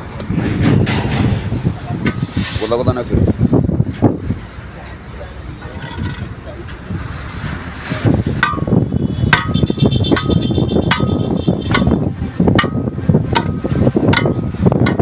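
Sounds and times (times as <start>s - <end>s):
steel bar clanging on wheel rim: 8.2s - 15.0s.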